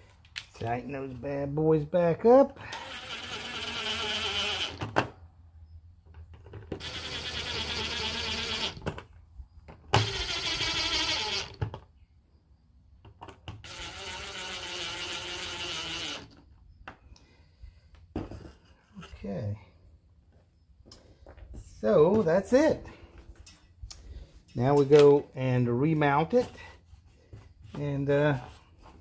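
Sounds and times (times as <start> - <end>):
impact driver driving screws: 2.7 - 5.1, 6.7 - 9.0, 9.9 - 11.8, 13.5 - 16.4.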